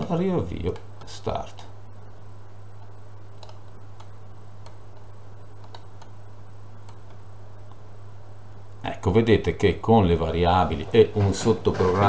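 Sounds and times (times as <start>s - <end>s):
low hum: 0.0s - 12.0s
faint clicks: 2.8s - 6.2s, 6.8s - 7.8s.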